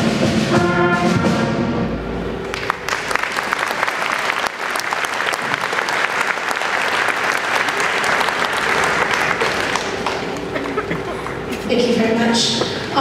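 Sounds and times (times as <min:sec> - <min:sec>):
audience applause: 0:02.5 - 0:11.5.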